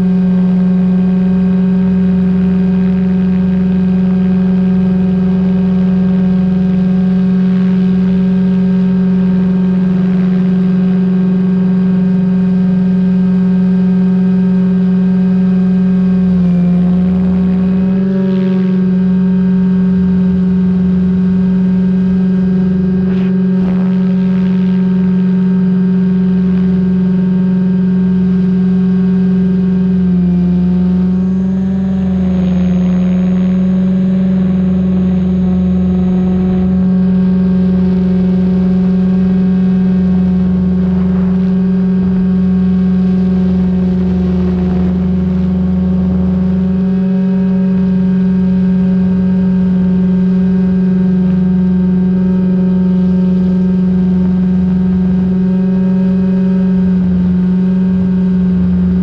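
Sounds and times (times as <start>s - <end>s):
low rumble: 15.2s - 50.2s
helicopter rotors humming: 16.0s - 28.5s, 29.5s - 47.4s.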